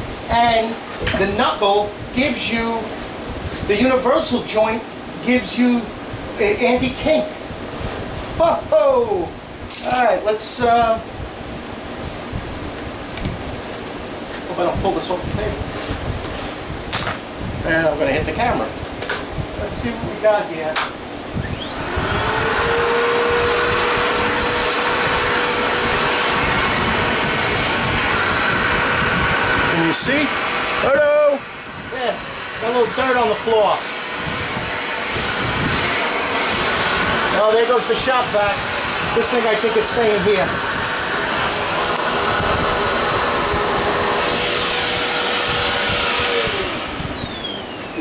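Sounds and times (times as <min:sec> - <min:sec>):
motor spinning down: 0:21.4 - 0:48.0
vacuum motor whining: 0:21.4 - 0:48.0.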